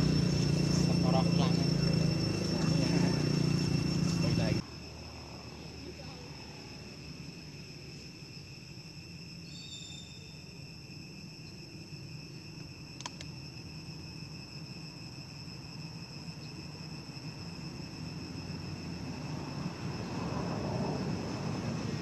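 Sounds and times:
insects chirring: 0.0s - 22.0s
sharp click: 13.0s - 13.3s.

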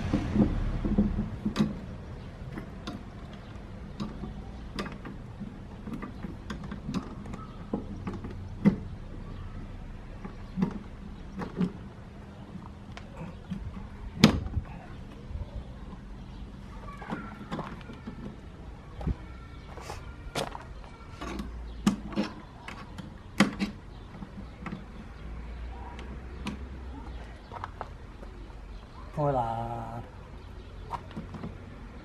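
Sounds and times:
metal case clicking and knocking: 2.5s - 8.9s, 10.2s - 11.9s.

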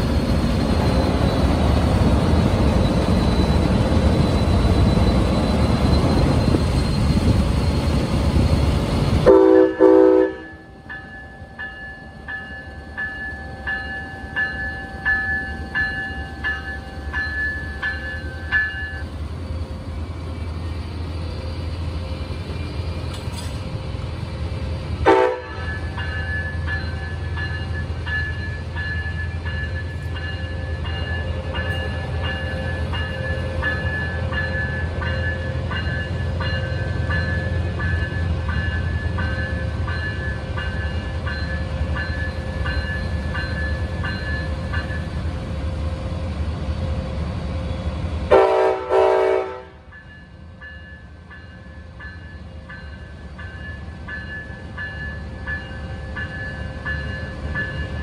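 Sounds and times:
loud train horn blast: 9.3s - 10.6s, 25.0s - 25.7s, 48.3s - 49.9s
bell ringing steadily: 10.4s - 19.0s, 25.6s - 45.2s, 49.9s - 58.0s.

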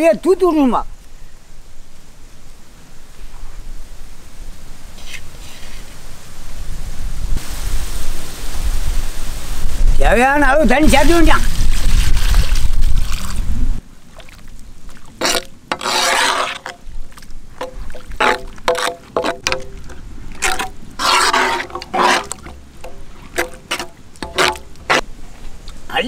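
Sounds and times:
ladle sloshing and scraping in wok: 14.1s - 25.6s.

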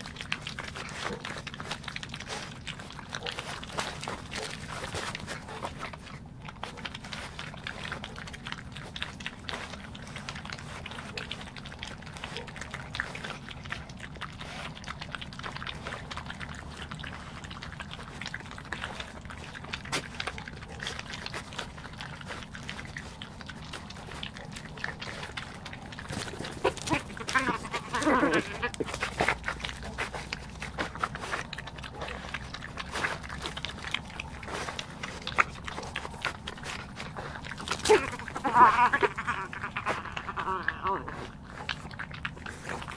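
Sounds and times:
badgers crunching peanuts: 0.0s - 42.9s
badger growling groan: 26.4s - 28.9s, 37.7s - 41.4s.

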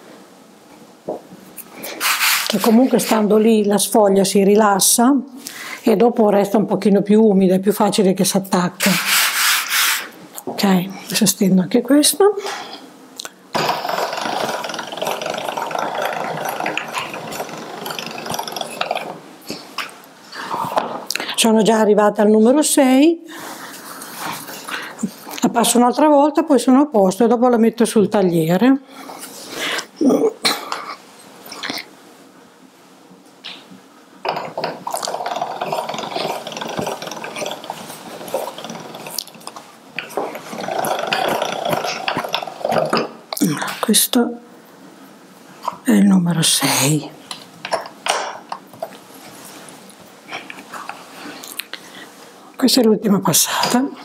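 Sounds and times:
pasta machine gears rattling: 13.5s - 19.2s, 34.3s - 43.1s.

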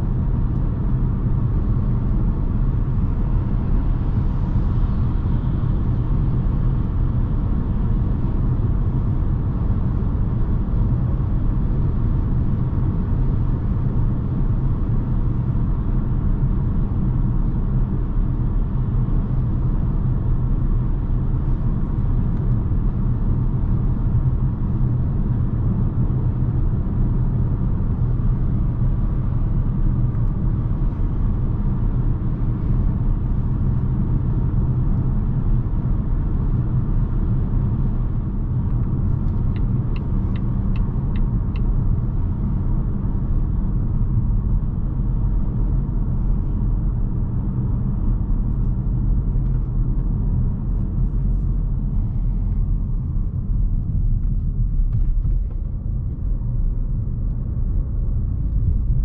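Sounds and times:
in-cabin road and tyre rumble: 0.0s - 59.0s
car engine: 36.2s - 46.5s.

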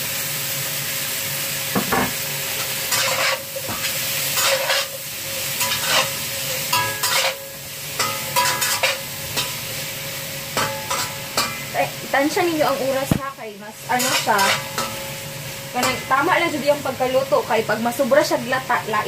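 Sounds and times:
food sizzling in hot oil: 0.0s - 19.0s
spatula scraping wok: 1.8s - 13.1s, 13.7s - 17.3s.

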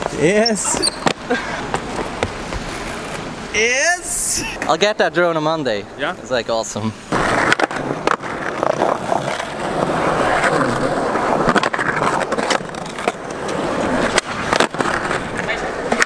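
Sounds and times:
skateboard clacking on ground: 0.0s - 3.2s, 7.1s - 16.0s
skateboard wheels rolling on concrete: 0.0s - 16.0s.

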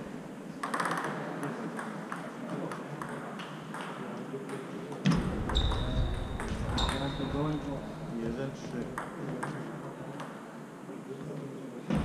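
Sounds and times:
ping pong ball clicks: 0.6s - 4.0s.

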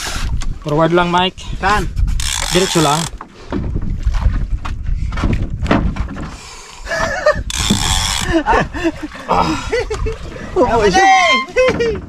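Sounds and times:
boat engine rumble: 0.0s - 12.0s
fishing reel clicking: 2.2s - 3.1s, 7.5s - 8.3s.

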